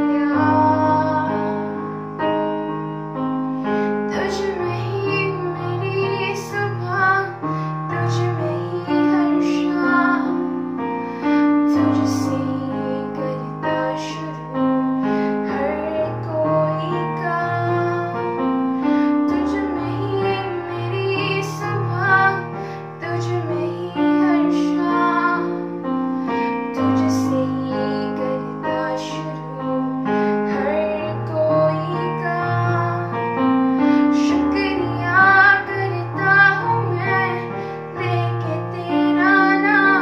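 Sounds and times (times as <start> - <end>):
girl singing: 0.0 - 2.4, 3.7 - 40.0
electronic keyboard chords: 0.0 - 40.0.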